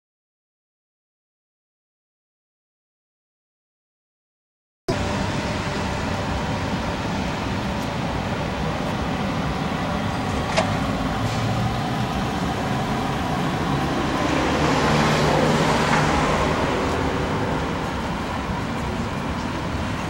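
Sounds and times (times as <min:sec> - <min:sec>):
city street traffic: 0:04.9 - 0:20.0
vehicle passing: 0:04.9 - 0:20.0.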